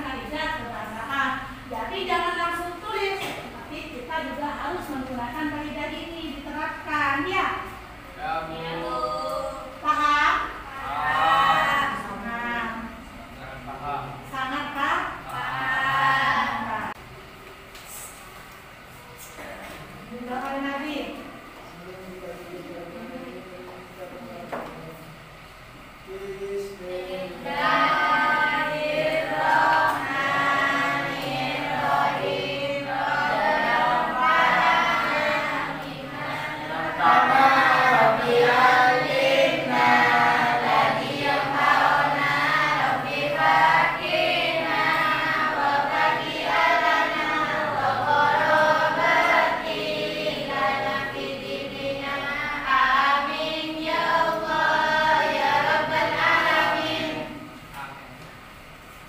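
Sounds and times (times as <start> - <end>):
students chanting a prayer in unison: 7.9 - 17.0, 25.9 - 57.7.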